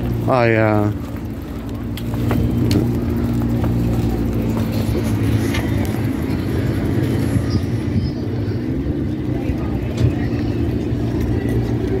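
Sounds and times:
car engine idling: 0.0 - 12.0.

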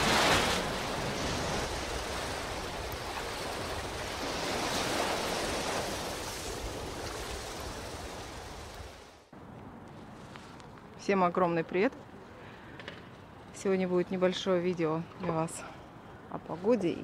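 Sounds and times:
wave crashing: 0.0 - 9.3.

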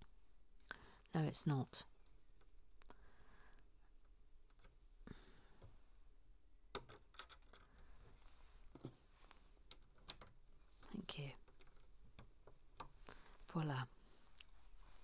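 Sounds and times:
plastic bricks clicking: 6.7 - 7.8.

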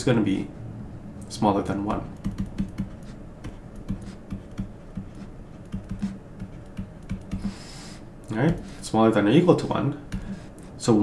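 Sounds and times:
stylus tapping on tablet screen: 1.9 - 7.7.

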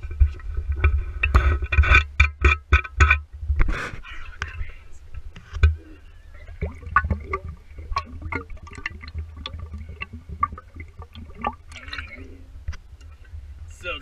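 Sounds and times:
liquid gurgling in a bottle: 5.6 - 13.2.

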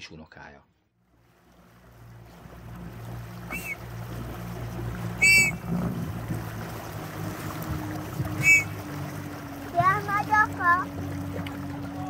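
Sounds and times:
plastic whistle blasts: 3.5 - 3.8, 5.2 - 5.6, 8.4 - 8.8.

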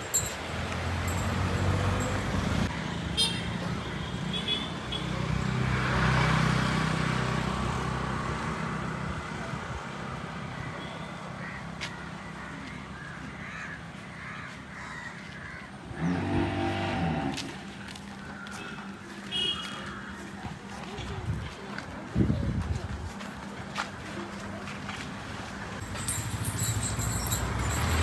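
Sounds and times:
crow cawing: 10.6 - 15.8, 18.2 - 18.9
motor vehicle passing: 15.5 - 19.0, 25.7 - 28.0.

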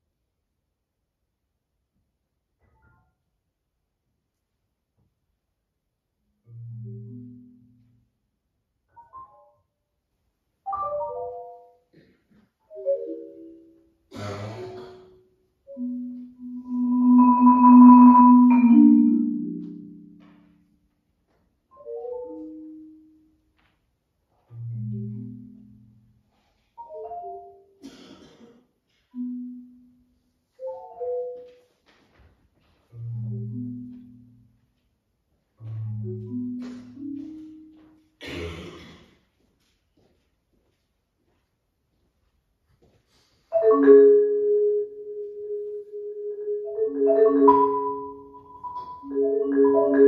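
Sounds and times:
marimba playing low notes: 10.7 - 11.7, 12.7 - 13.8, 15.7 - 20.5, 24.6 - 26.1, 33.0 - 34.5, 35.6 - 37.8, 43.5 - 50.0.

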